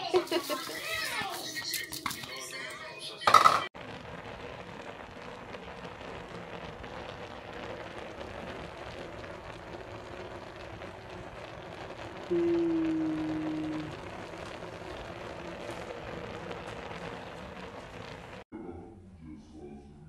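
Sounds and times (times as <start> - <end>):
sauce simmering with crackling hiss: 0.0 - 2.4, 3.8 - 18.5.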